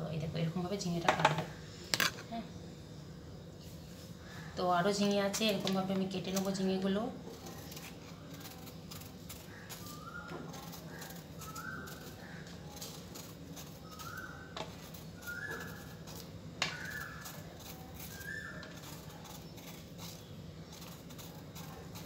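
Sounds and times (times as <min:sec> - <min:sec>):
knife stripping gourd: 0:05.0 - 0:22.0.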